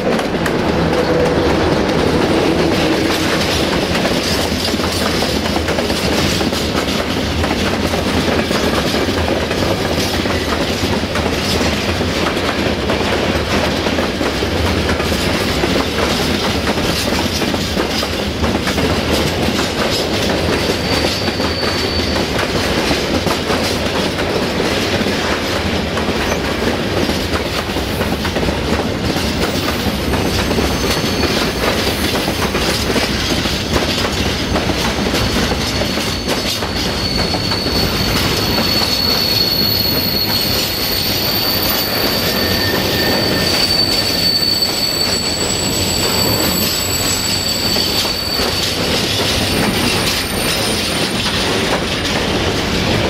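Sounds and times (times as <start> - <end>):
freight wagons rolling on rails: 0.0 - 53.0
high-pitched wheel squeal: 20.6 - 22.5, 29.4 - 32.7, 35.1 - 51.3.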